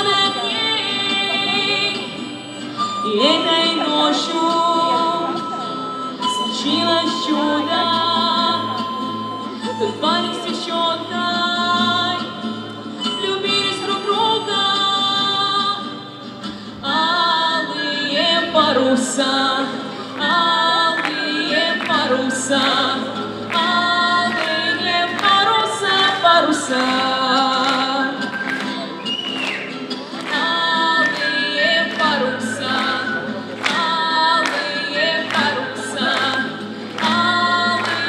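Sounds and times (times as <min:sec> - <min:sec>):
woman singing: 0:00.0 - 0:28.4, 0:30.2 - 0:38.0
acoustic guitars: 0:00.0 - 0:38.0
harmonica melody: 0:01.6 - 0:11.4.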